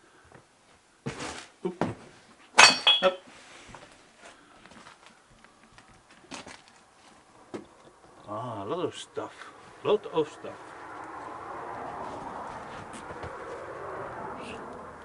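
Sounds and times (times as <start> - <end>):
household junk knocking and clinking: 2.6 - 3.2.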